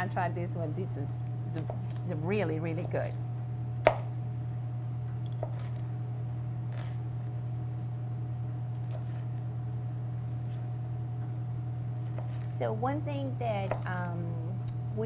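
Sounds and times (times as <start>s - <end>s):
steady low hum: 0.0s - 15.0s
knife chopping on cutting board: 3.8s - 4.1s, 5.4s - 5.8s, 12.0s - 12.4s, 13.6s - 14.0s.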